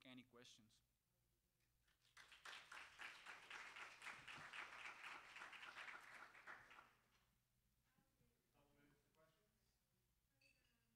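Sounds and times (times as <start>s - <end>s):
audience applauding: 2.0s - 7.0s.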